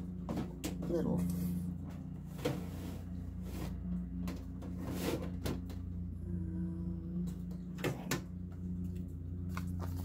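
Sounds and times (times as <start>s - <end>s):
steady low hum: 0.0s - 10.0s
paper and tools rustling: 9.4s - 10.0s.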